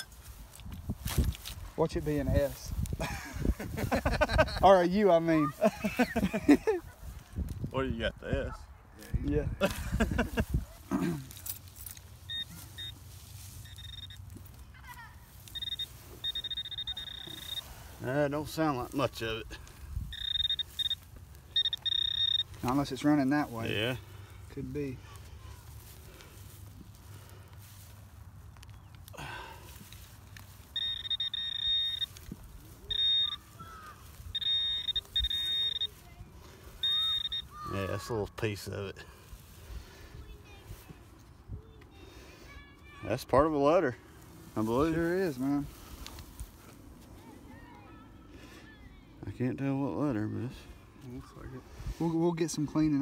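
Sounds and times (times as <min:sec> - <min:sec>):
pinpointer steady tone: 0:11.8 - 0:14.4, 0:15.4 - 0:23.5, 0:30.6 - 0:36.2, 0:36.8 - 0:37.6
pinpointer high-pitched beeps: 0:12.3 - 0:13.0, 0:13.6 - 0:14.2, 0:15.4 - 0:17.8, 0:20.1 - 0:22.7, 0:30.7 - 0:33.5, 0:34.3 - 0:36.0, 0:36.8 - 0:37.6.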